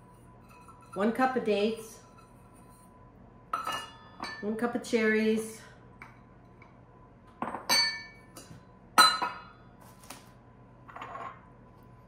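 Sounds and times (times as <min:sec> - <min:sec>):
clinks against glass bowl: 0:03.5 - 0:04.4, 0:07.4 - 0:09.5.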